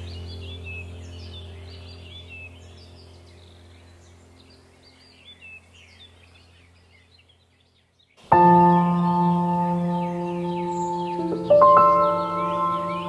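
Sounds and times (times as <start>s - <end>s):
birds chirping: 0.0s - 13.0s
low ambient drone: 0.0s - 13.0s.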